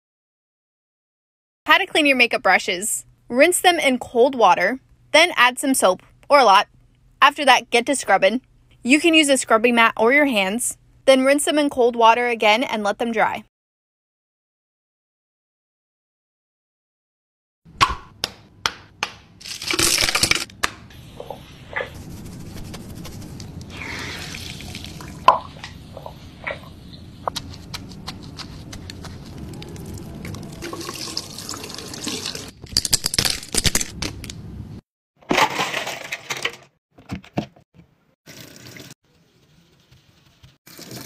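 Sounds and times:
brush scrubbing on wet mat: 21.9 - 24.7, 27.4 - 29.5
tap water running: 23.7 - 26.1, 30.2 - 32.5, 38.3 - 39.0, 40.7 - 41.0.

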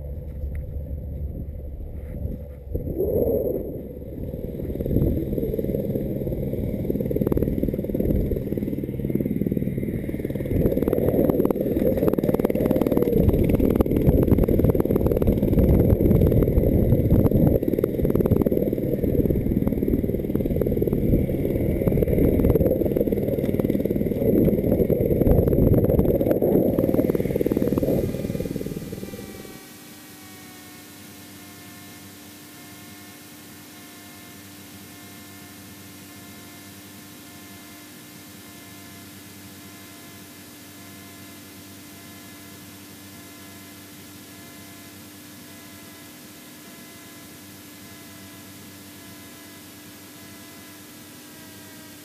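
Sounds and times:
wind buffeting microphone: 3.8 - 29.5.

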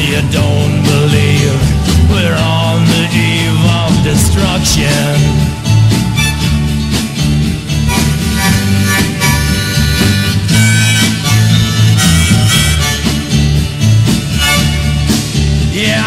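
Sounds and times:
bass: 0.0 - 16.0
steady drum beat: 0.0 - 16.0
strummed guitar: 0.0 - 16.0
harmonica solo: 4.6 - 15.7.

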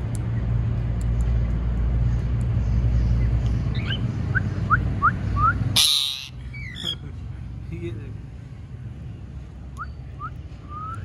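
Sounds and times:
parrot chirps: 5.8 - 7.0
parrot squawk: 5.8 - 7.0.

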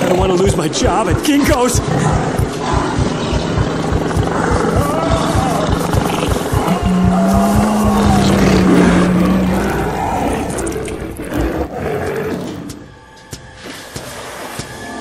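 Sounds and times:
tiger roaring: 1.3 - 12.9
low electronic tone: 3.2 - 9.5.

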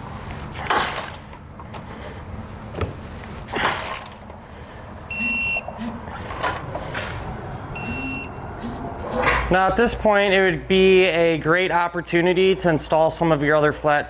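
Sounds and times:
electronic beep: 5.1 - 5.7, 7.8 - 8.4.

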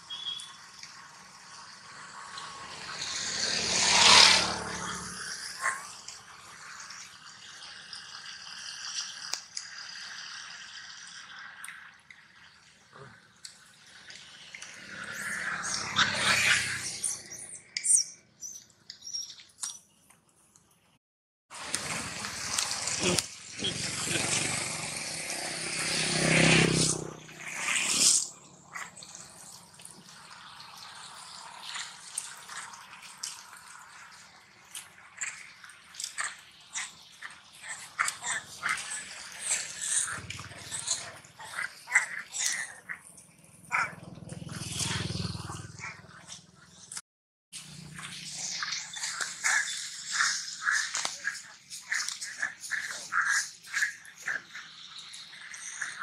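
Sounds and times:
faint drips and ticks: 0.0 - 3.2, 4.8 - 16.5, 28.7 - 43.5, 47.6 - 56.0
vehicle passing on wet road: 0.9 - 7.9, 14.2 - 17.2, 21.6 - 35.5, 44.1 - 45.9.

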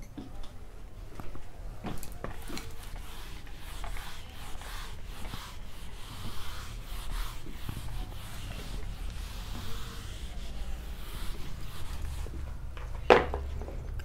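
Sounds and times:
whiteboard eraser rubbing: 1.9 - 12.6.

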